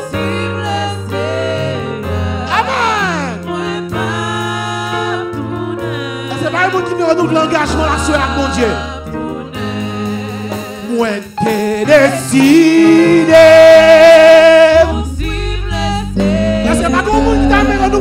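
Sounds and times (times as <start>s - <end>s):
low instrumental accompaniment: 0.0s - 18.0s
man singing into microphone: 2.4s - 3.5s, 10.8s - 18.0s.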